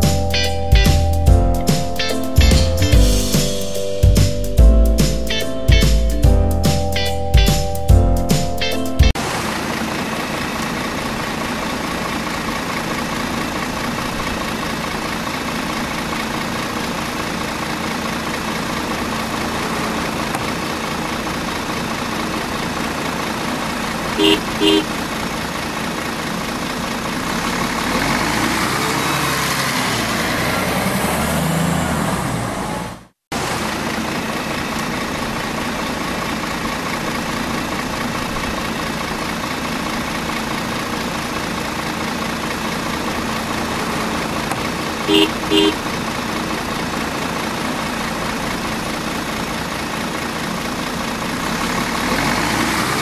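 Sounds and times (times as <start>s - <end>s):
horn beeps: 0.0s - 9.2s, 24.2s - 24.9s, 45.1s - 45.8s
large vehicle engine running: 0.0s - 53.0s.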